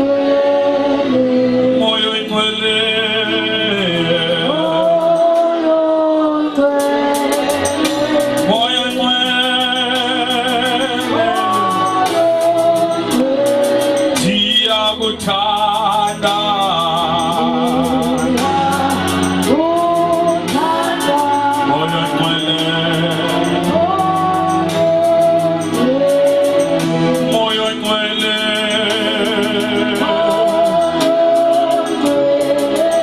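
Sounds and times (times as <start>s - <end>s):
instrumental backing: 0.0s - 33.0s
man singing into a microphone: 0.0s - 33.0s
ticking beat: 6.6s - 33.0s.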